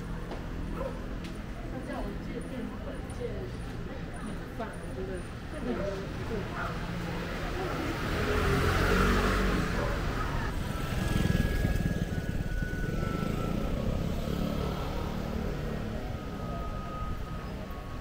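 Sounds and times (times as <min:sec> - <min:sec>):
engine rumble: 0:00.0 - 0:18.0
vehicle passing: 0:06.6 - 0:18.0.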